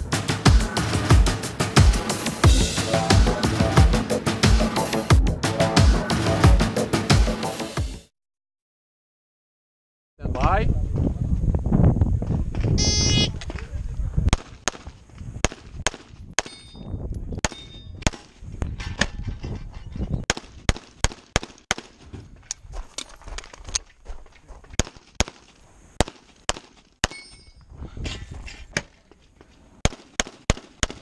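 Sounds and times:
steel targets ringing: 16.4 - 16.8, 27.0 - 27.6
pistol shots: 20.3 - 21.9, 29.8 - 31.0.

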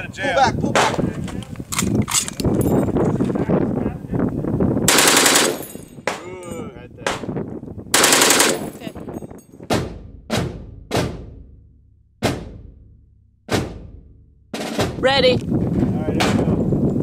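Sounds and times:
machine gun bursts: 4.9 - 5.8, 8.0 - 8.9.

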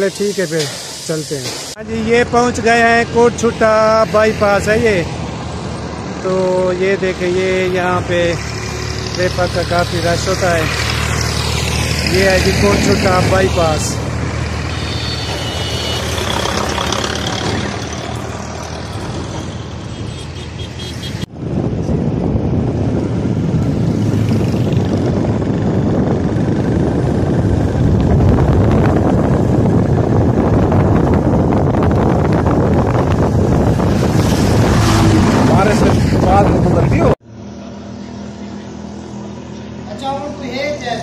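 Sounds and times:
highway traffic passing: 0.0 - 41.0
tractor and trucks passing: 0.0 - 41.0
motorcycle engine: 7.4 - 21.3, 22.6 - 40.6
wind on microphone: 21.2 - 37.2.

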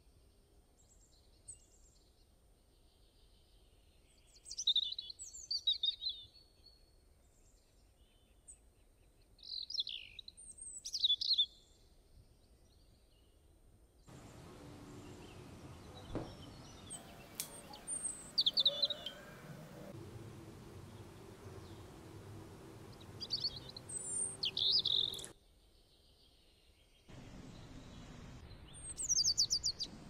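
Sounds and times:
small birds chirping: 2.8 - 6.7, 7.4 - 11.8, 14.1 - 30.0
faint steady hiss: 14.1 - 25.4, 27.1 - 30.0
soft knock: 16.0 - 16.5.

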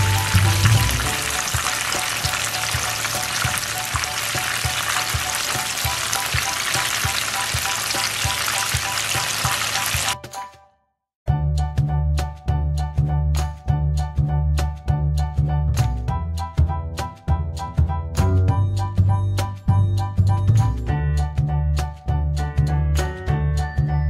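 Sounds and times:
spring rolls sizzling in oil: 0.0 - 10.2.

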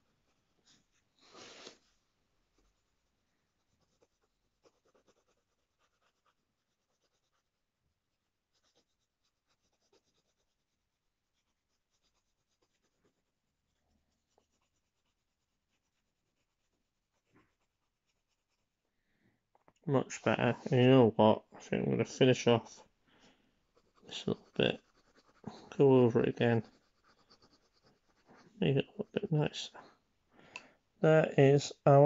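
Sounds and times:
pencil scratching on paper: 2.5 - 7.6, 8.4 - 18.8, 23.7 - 28.6.

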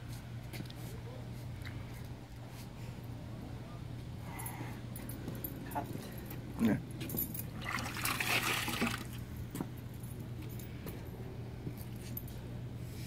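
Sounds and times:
steady low hum: 0.0 - 13.0
sponge splashing and dripping: 7.6 - 9.2.

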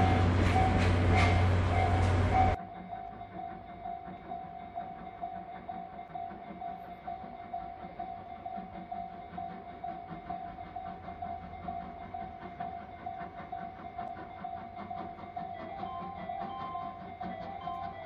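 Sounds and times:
railway warning bell ringing: 0.0 - 8.6, 15.7 - 18.0.

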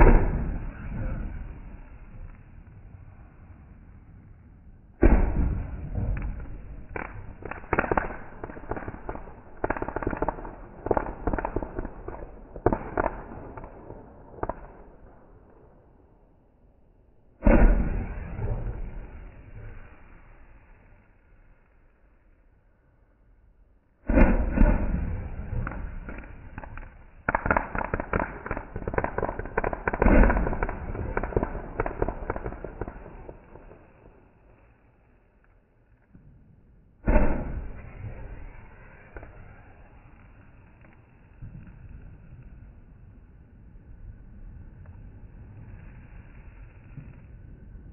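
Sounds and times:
fireworks bang: 0.0 - 2.5, 4.9 - 15.6, 17.4 - 20.1, 24.0 - 34.6, 36.1 - 42.8
fireworks crackling pops: 0.0 - 3.6, 4.9 - 15.9, 17.4 - 22.0, 24.0 - 47.9.

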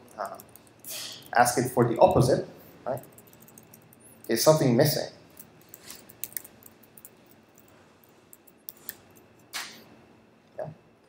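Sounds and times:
laptop keys typing: 0.1 - 0.9, 3.0 - 4.4, 5.3 - 9.4
short hiss: 0.8 - 1.2.

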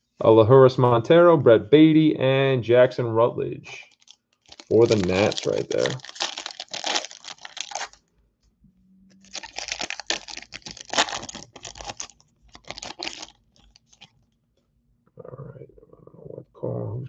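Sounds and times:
foil wrapper crinkling and tearing: 3.9 - 8.0, 9.2 - 14.2.

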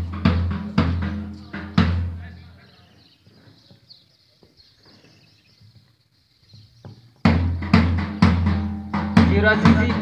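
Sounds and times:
marching music with heavy drum: 0.0 - 2.4, 7.1 - 10.0
faint outdoor background: 0.0 - 10.0.

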